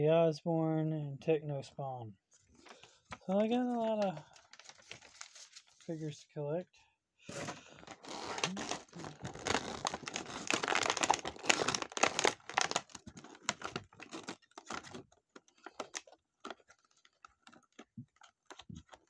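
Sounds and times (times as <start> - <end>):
plastic packaging crinkling: 2.6 - 5.9, 7.7 - 19.0.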